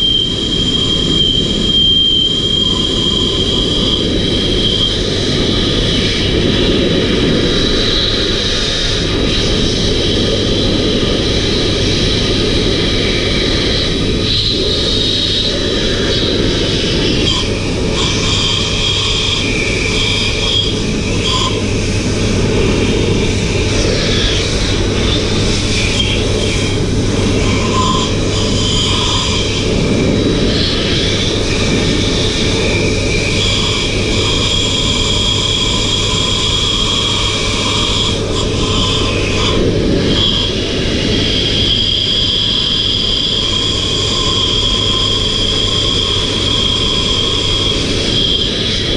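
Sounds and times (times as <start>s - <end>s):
air rushing through hose: 0.0s - 48.9s
electric blower motor whining: 0.0s - 48.9s.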